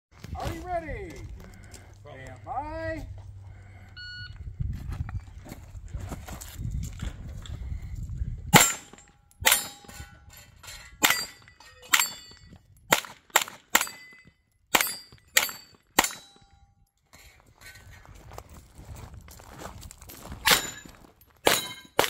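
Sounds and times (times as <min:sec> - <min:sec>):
carbine gunshots: 0:08.5 - 0:10.0, 0:12.9 - 0:14.1
steel targets ringing: 0:08.5 - 0:12.5, 0:13.8 - 0:16.7, 0:20.5 - 0:22.0.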